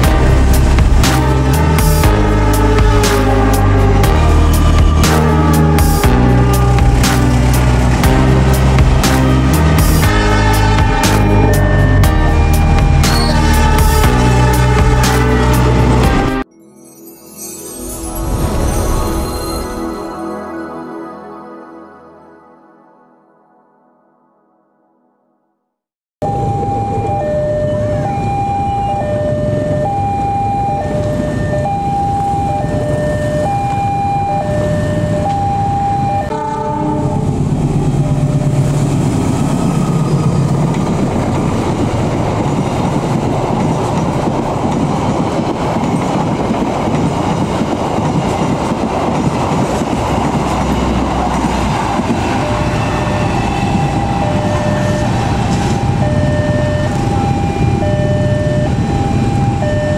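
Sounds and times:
train rumbling past on rails: 0.0 - 16.4, 26.3 - 59.9
two-tone crossing alarm: 0.0 - 16.4, 26.2 - 38.0, 50.4 - 59.9.

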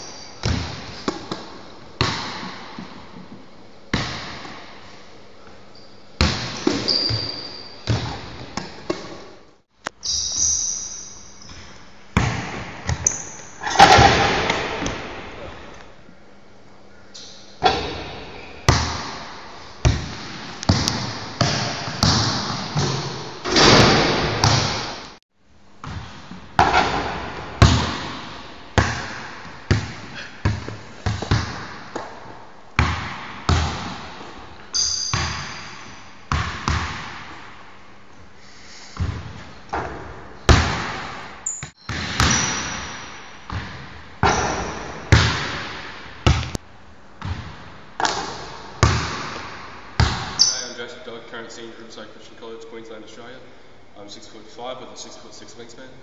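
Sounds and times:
basketball bouncing on wooden floor: 6.2 - 9.2, 11.5 - 13.2, 17.6 - 24.9, 25.8 - 32.2, 32.8 - 34.4, 35.0 - 35.7, 36.3 - 37.4, 39.0 - 46.6, 47.2 - 50.4
high squeaks: 10.0 - 11.6.

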